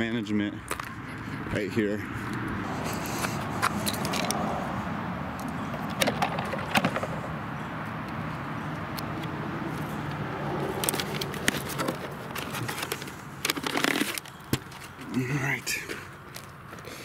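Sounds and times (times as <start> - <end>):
paper rustling: 11.0 - 15.1.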